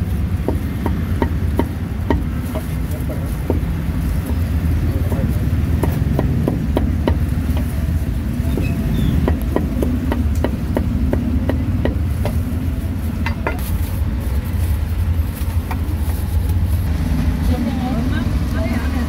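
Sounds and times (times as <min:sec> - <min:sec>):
cleaver chopping on wooden block: 0:05.1 - 0:07.7, 0:09.2 - 0:12.4.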